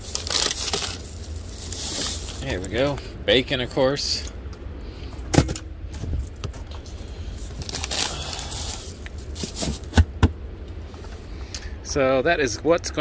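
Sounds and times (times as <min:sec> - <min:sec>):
crinkling plastic packaging: 0:00.0 - 0:03.0, 0:07.4 - 0:09.9
steady low rumble: 0:00.0 - 0:13.0.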